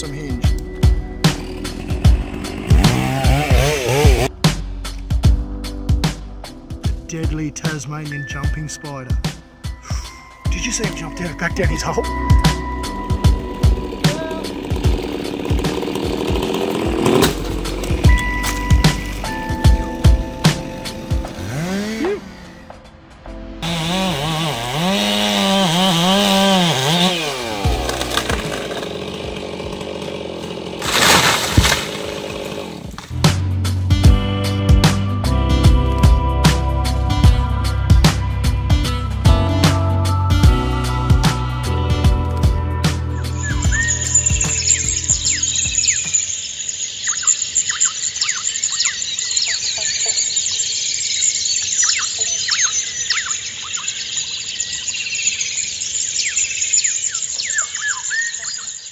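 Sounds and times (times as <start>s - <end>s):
chainsaw cutting wood: 0.5s - 4.3s, 10.8s - 22.6s, 23.6s - 33.3s, 43.4s - 46.2s
small birds chirping: 43.2s - 58.9s.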